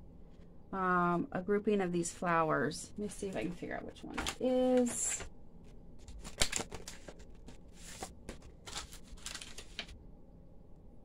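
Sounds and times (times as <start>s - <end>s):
plastic packaging crinkling and clicking: 6.0s - 9.9s.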